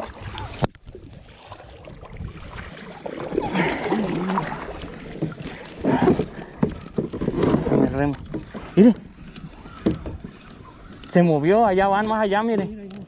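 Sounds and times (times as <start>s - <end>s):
wind on microphone: 0.0s - 3.5s
paddles splashing in water: 0.0s - 13.0s
water washing along plastic hull: 0.0s - 13.0s.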